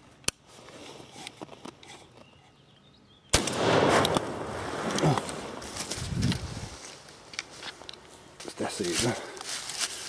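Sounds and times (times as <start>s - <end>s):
shotgun blast: 3.3s - 5.6s.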